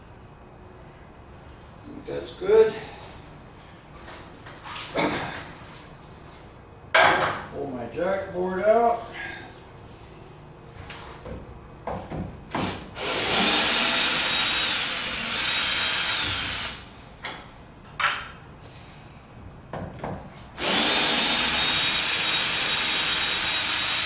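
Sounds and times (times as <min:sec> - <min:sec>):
cordless drill driving screw: 0:13.0 - 0:16.8, 0:20.6 - 0:24.0.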